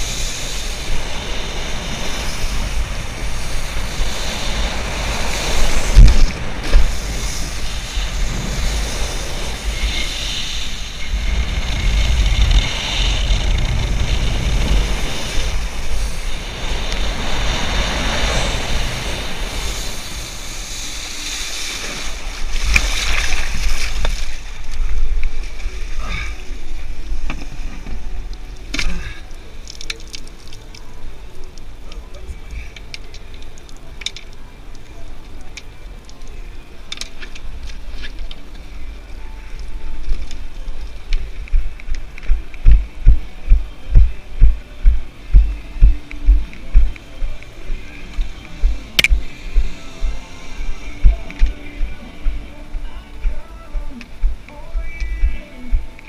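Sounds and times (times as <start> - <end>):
water spray hissing: 0.0 - 24.2
wind buffeting microphone: 41.1 - 55.9.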